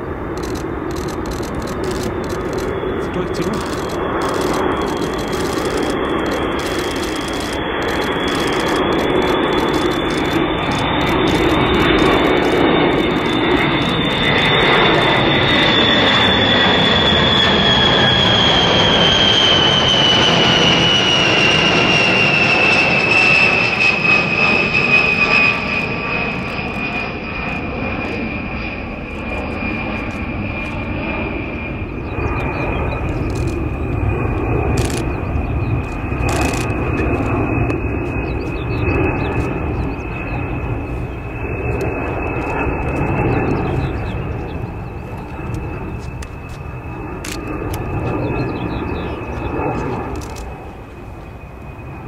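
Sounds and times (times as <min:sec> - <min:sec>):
jet bomber flyover rumble and whine: 0:00.0 - 0:52.0.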